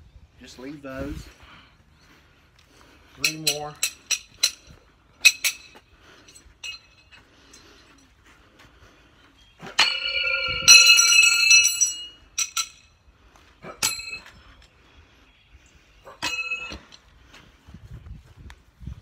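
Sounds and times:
metal knives striking a tree: 3.2s - 4.6s, 9.6s - 12.9s, 13.7s - 14.4s, 16.1s - 17.0s.

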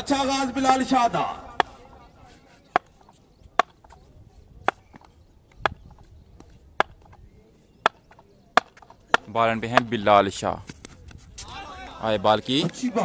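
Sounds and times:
bat tapping on concrete: 2.7s - 4.0s, 4.6s - 7.2s, 7.8s - 10.0s.

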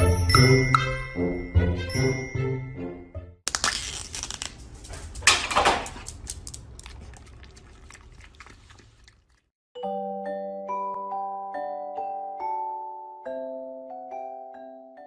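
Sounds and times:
bell-like music: 0.0s - 3.0s, 9.8s - 15.0s
lid crinkling and crunching: 3.5s - 9.2s
dog licking: 6.0s - 9.5s.

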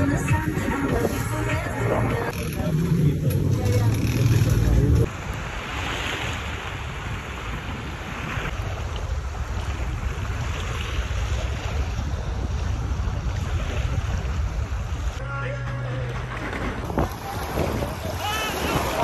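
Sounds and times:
small waves washing on shore: 0.0s - 15.2s, 16.4s - 19.0s
wind buffeting microphone: 6.4s - 15.2s, 16.3s - 19.0s.

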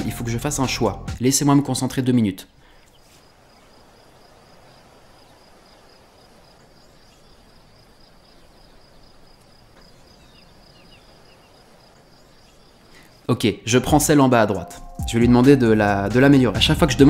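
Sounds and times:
low hiss: 1.2s - 15.0s
faint bird chirps: 2.4s - 13.3s
insect chirring: 2.5s - 13.8s.

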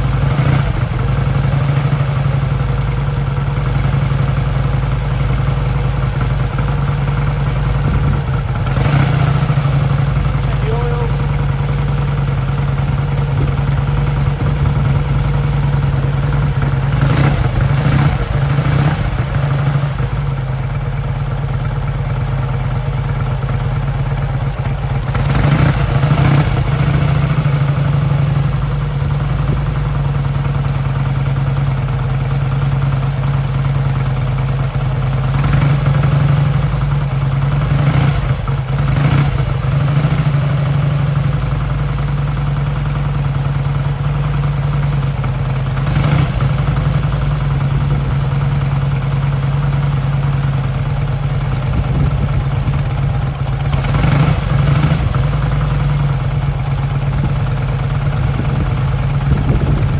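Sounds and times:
motorcycle engine idling: 0.0s - 59.9s.

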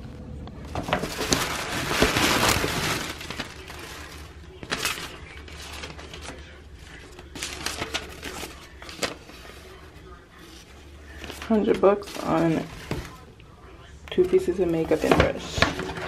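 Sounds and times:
paper bag rustling: 0.6s - 13.4s, 14.1s - 16.0s.

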